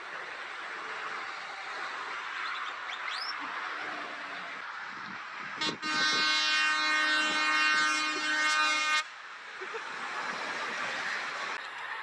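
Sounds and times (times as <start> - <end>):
highway traffic noise: 0.0 - 12.0
truck air horn blast: 5.6 - 9.1.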